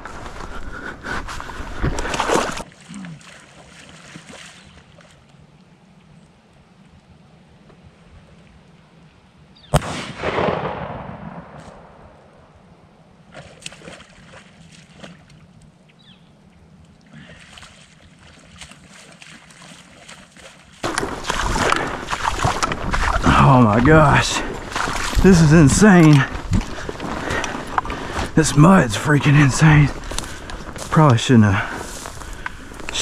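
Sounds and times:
splashing steps through water and mud: 0.0 - 5.4, 13.3 - 15.6, 17.0 - 33.0
distant shotgun shot: 9.7 - 12.4.

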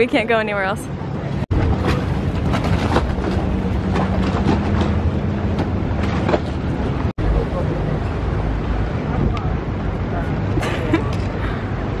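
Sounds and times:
wind rumbling on microphone: 0.9 - 12.0.

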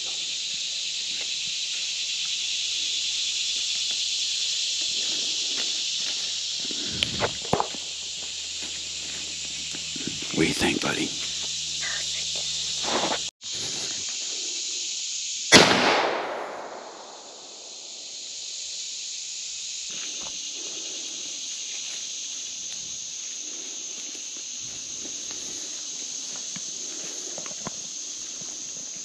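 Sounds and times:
insects droning: 0.0 - 29.0
gunshot echoing: 15.5 - 17.4.

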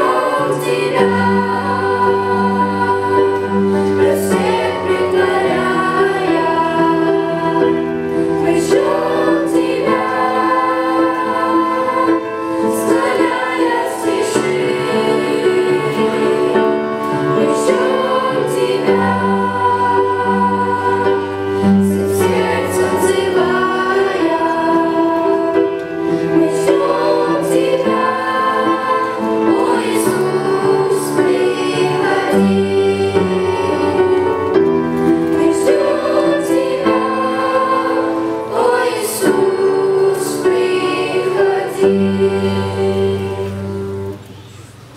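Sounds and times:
children's choir singing: 0.0 - 44.9
instrumental accompaniment: 0.0 - 44.9.

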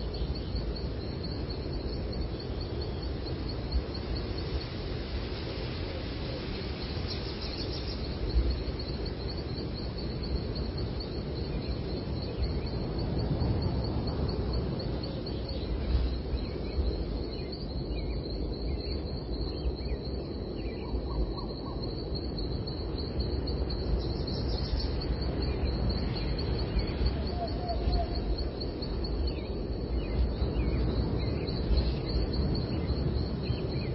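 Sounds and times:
small birds chirping and trilling: 14.9 - 33.9.

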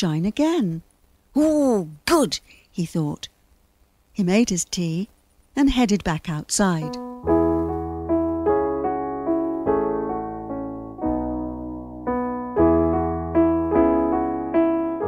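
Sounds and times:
solo keyboard music: 6.8 - 15.0.

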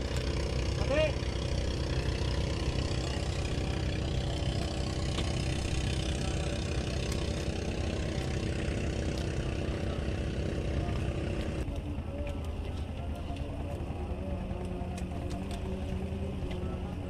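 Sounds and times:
boat engine idling: 0.0 - 17.0.

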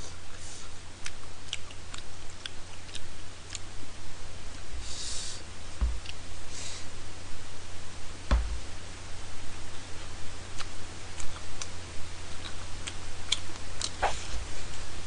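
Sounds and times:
soft thump: 5.8 - 6.1, 8.3 - 8.7.

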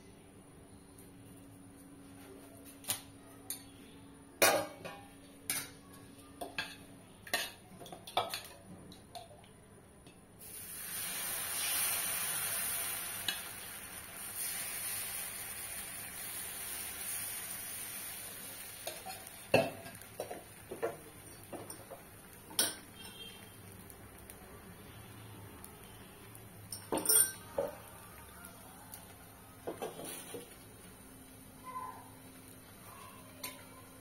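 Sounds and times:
batter sizzling on hot pan: 10.4 - 34.0.

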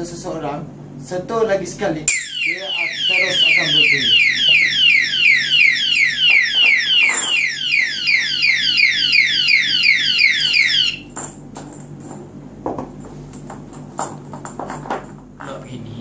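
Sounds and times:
padlock alarm siren chirping: 2.1 - 11.1.

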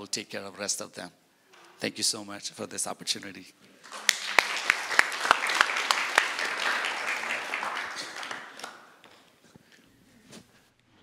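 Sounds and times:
congregation applauding: 3.8 - 9.2
loud single claps: 3.9 - 9.2.

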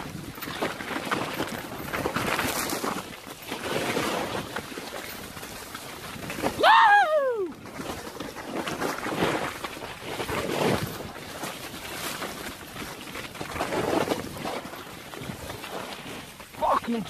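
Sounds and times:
bike rolling over ground: 0.0 - 6.6, 7.4 - 17.0
rider whooping: 6.6 - 7.6.

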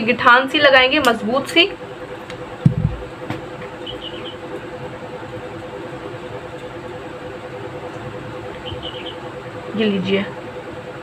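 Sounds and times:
steady background hum: 0.0 - 11.0
low thump: 2.6 - 3.5.

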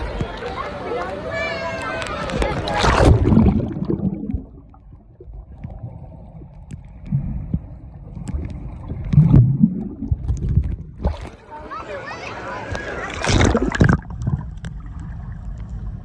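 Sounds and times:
underwater gurgling and bubbling: 2.6 - 11.3, 13.2 - 16.0
exhaled bubbles bursting: 2.6 - 11.4, 13.1 - 15.4.

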